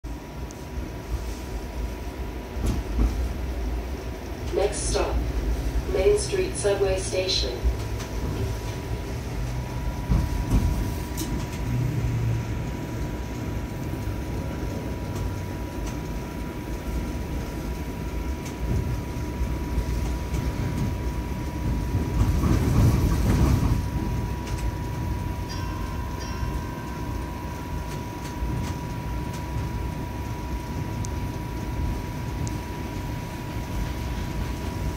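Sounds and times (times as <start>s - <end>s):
wheels rumbling on rails: 0.0s - 34.9s
thin steady whine: 0.1s - 20.1s, 23.7s - 34.9s.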